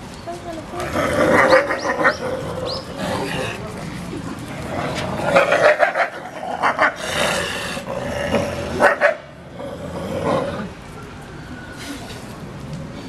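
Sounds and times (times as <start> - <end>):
wolves snarling and yelping: 0.9 - 3.6, 4.9 - 9.2.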